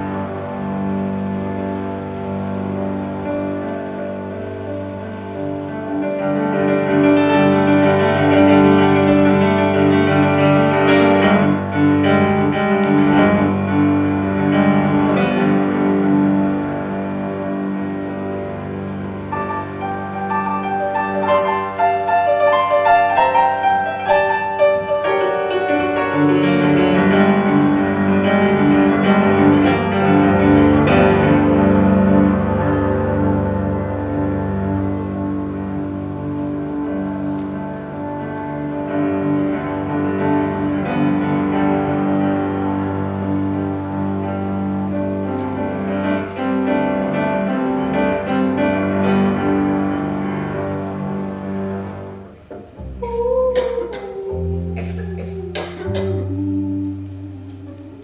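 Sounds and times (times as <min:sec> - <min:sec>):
double bass: 0:00.0 - 0:21.8, 0:22.5 - 0:58.0
piano music: 0:00.0 - 0:58.0.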